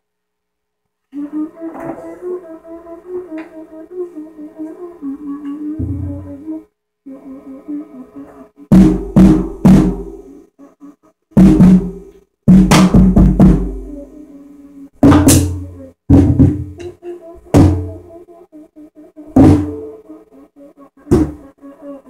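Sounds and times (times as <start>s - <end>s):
drum kit hits: 8.7s - 10.1s, 11.4s - 13.8s, 15.0s - 16.9s.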